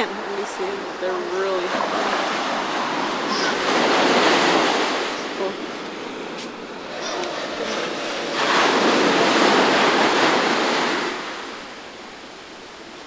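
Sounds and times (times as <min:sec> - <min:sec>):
ocean wave breaking: 0:00.0 - 0:13.0.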